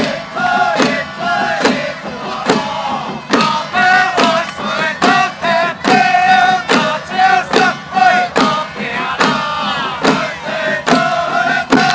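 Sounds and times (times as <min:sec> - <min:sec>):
men chanting in unison: 0:00.0 - 0:11.9.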